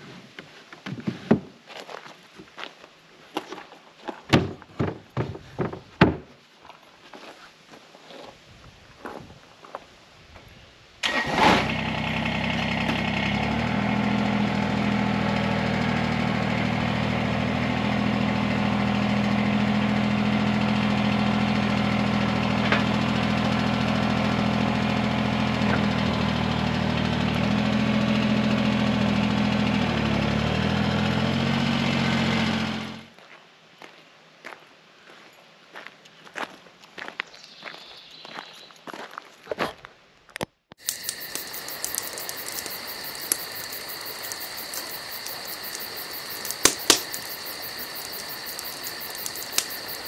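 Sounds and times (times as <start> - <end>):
tractor engine cranking and running: 11.0 - 33.0, 40.8 - 50.0.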